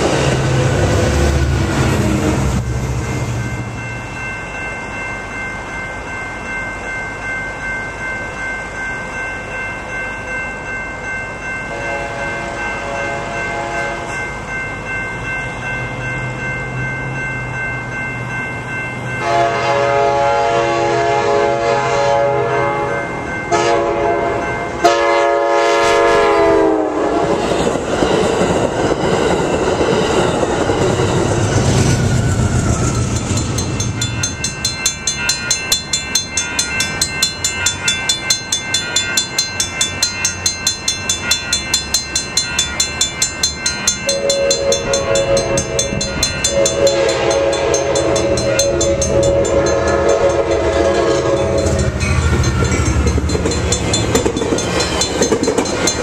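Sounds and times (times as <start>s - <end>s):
crossing bell ringing: 0.0s - 56.0s
train horn blasts: 11.7s - 14.2s, 19.2s - 27.4s, 44.1s - 52.2s
train wheels clacking: 27.2s - 56.0s.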